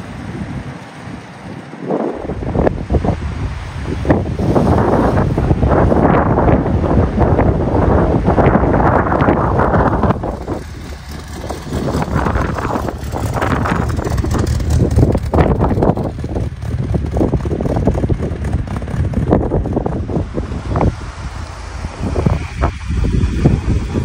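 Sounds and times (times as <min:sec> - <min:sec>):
car engine running: 0:00.0 - 0:24.0
wind buffeting microphone: 0:00.0 - 0:24.0.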